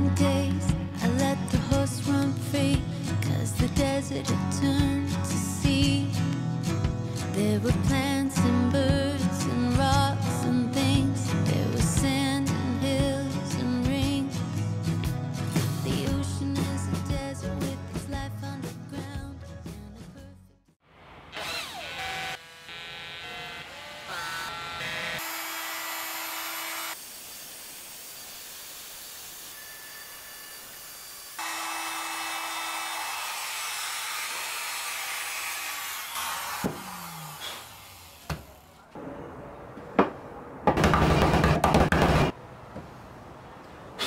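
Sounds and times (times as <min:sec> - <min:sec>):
router cutting wood: 0:21.2 - 0:38.7
sharp knocks: 0:39.8 - 0:42.4.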